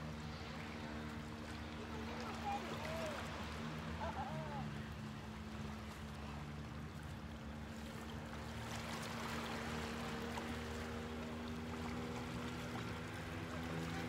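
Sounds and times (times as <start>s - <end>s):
waves lapping on rocks: 0.0s - 6.5s.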